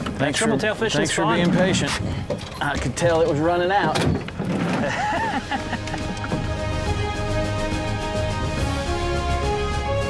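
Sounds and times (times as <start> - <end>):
music with steady beat and bass: 5.3 - 10.0.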